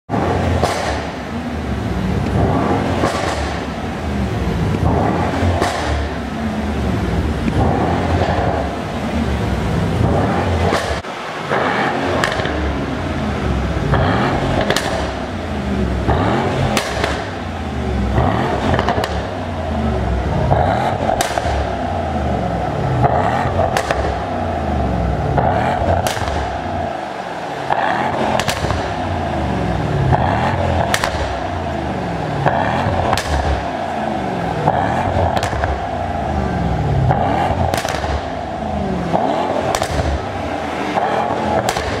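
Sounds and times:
car engine revving: 0:00.0 - 0:42.0
exhaust pops and crackles: 0:00.1 - 0:01.2, 0:02.2 - 0:03.8, 0:04.6 - 0:06.2, 0:07.3 - 0:08.8, 0:10.0 - 0:12.8, 0:13.8 - 0:15.3, 0:16.0 - 0:19.4, 0:20.1 - 0:22.0, 0:22.9 - 0:24.4, 0:25.3 - 0:26.9, 0:27.7 - 0:29.3, 0:30.0 - 0:42.0.

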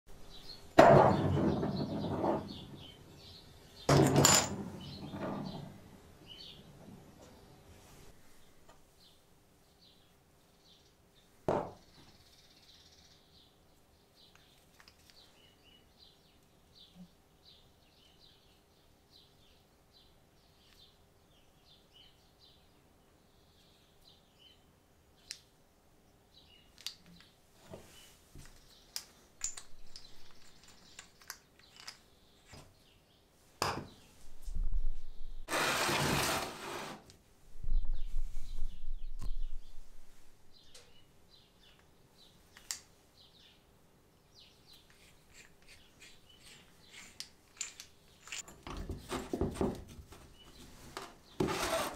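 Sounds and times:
scraping on wooden workbench: 0:00.8 - 0:02.9, 0:35.5 - 0:37.1, 0:50.9 - 0:51.9
knocks on wooden workbench: 0:11.5 - 0:11.8
small metal parts clicking: 0:28.4 - 0:32.1, 0:45.3 - 0:48.6.

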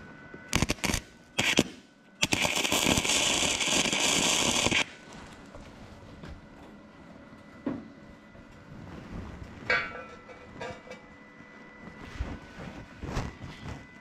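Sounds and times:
welder arc crackling: 0:00.5 - 0:05.4.

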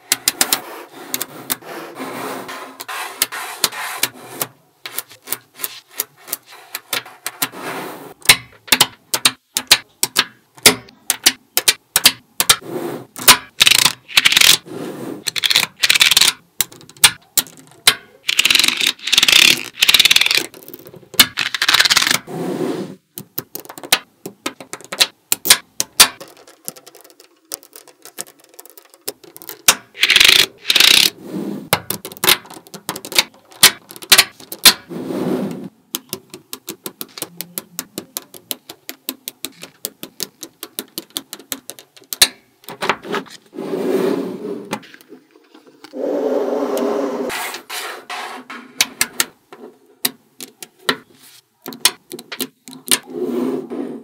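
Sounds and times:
rubbing and scraping: 0:00.0 - 0:08.3, 0:26.1 - 0:35.8, 0:47.2 - 0:49.0
magnetic balls clicking: 0:08.2 - 0:12.6, 0:13.2 - 0:14.6, 0:15.2 - 0:22.3, 0:23.1 - 0:34.9, 0:35.9 - 0:42.9, 0:50.0 - 0:53.1.

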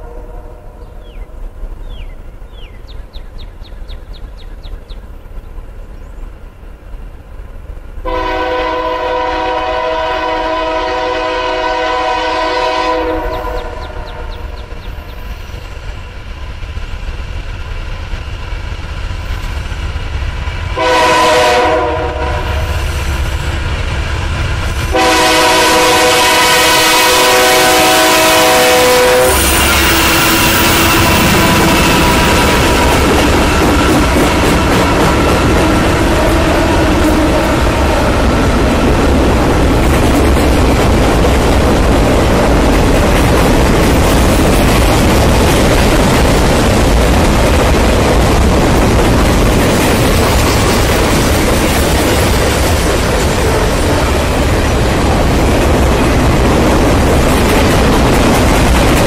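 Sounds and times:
locomotive air horn blasts: 0:00.0 - 0:00.8, 0:08.0 - 0:14.3, 0:20.8 - 0:22.8, 0:24.9 - 0:33.0
train engine and wheels rumbling: 0:00.0 - 0:59.0.

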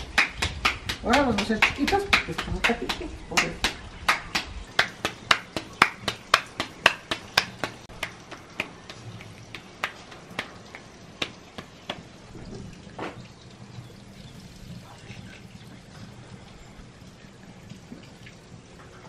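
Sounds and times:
hands slapping tortilla dough: 0:00.0 - 0:12.2.

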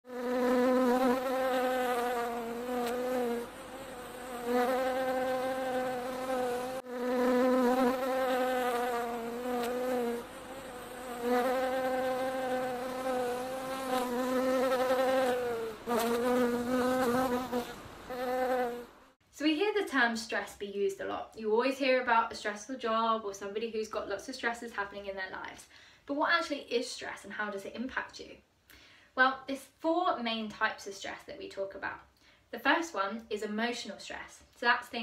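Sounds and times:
bee buzzing: 0:00.1 - 0:19.2.

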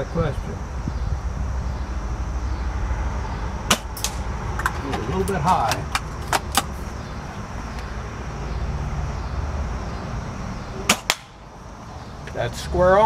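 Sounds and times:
steady low rumble: 0:00.0 - 0:13.0
airsoft rifle shot snaps: 0:10.9 - 0:11.4.

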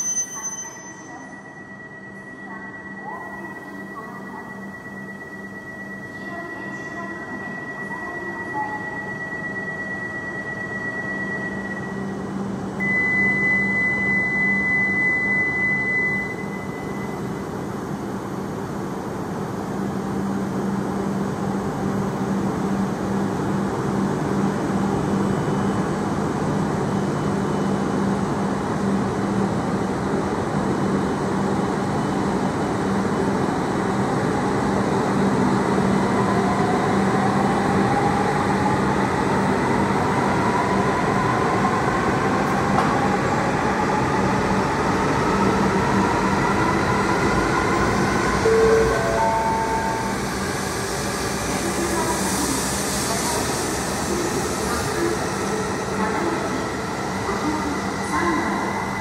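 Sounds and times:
train running noise: 0:16.6 - 0:59.0.

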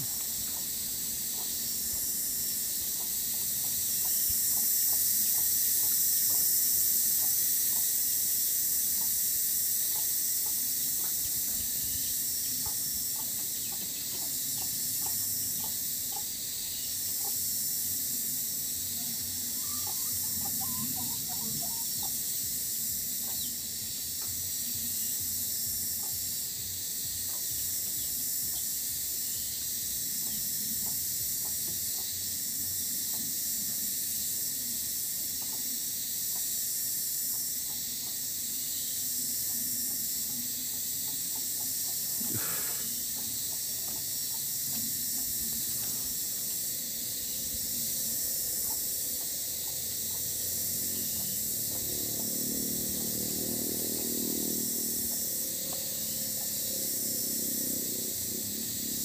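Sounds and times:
outdoor hiss among trees: 0:00.0 - 0:59.0
faint bird chirps: 0:19.0 - 0:22.2
faint ticks: 0:55.1 - 0:56.5.

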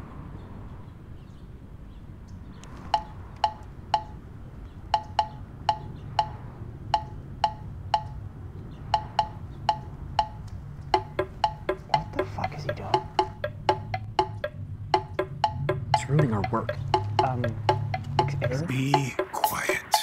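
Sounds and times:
bell-like ticking percussion: 0:03.0 - 0:04.2, 0:05.0 - 0:06.4, 0:07.0 - 0:08.2, 0:09.0 - 0:20.0.

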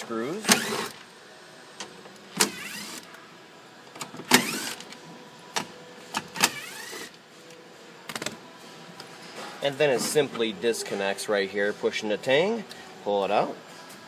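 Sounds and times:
cordless driver motor whirring: 0:00.4 - 0:01.0, 0:02.4 - 0:03.1, 0:04.3 - 0:04.8, 0:06.4 - 0:07.2.

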